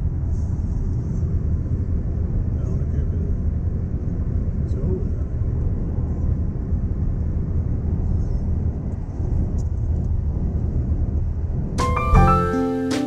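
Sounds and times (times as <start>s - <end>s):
road and tyre noise in car cabin: 0.0s - 12.5s
bright music: 11.8s - 13.0s.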